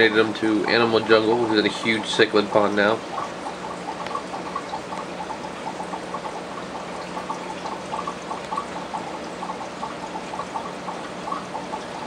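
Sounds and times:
aquarium water bubbling: 0.0s - 12.0s.

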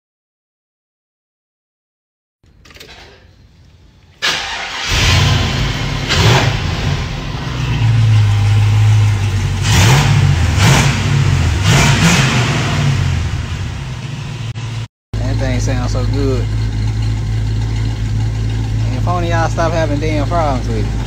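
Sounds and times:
car engine starting and revving: 4.2s - 21.0s.

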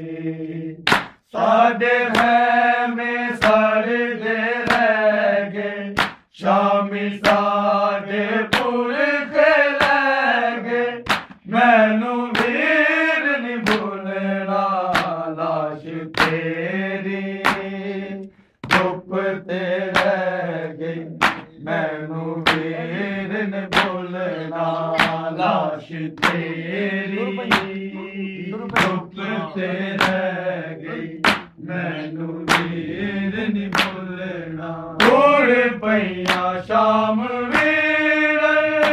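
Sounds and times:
men chanting: 0.0s - 38.9s
palms slapping chests: 0.8s - 1.2s, 6.0s - 6.3s, 11.0s - 11.4s, 12.4s - 12.6s, 15.0s - 15.2s, 16.2s - 16.5s, 17.4s - 17.8s, 18.6s - 19.0s, 19.9s - 20.2s, 21.2s - 21.6s, 22.4s - 22.8s, 23.7s - 24.1s, 24.9s - 31.6s, 32.4s - 34.2s, 35.0s - 35.4s, 36.1s - 38.0s.

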